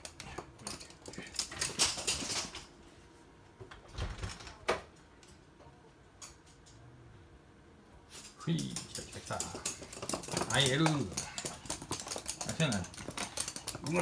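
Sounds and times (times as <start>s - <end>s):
dogs' claws clicking and scraping: 0.0s - 2.8s, 8.1s - 14.0s.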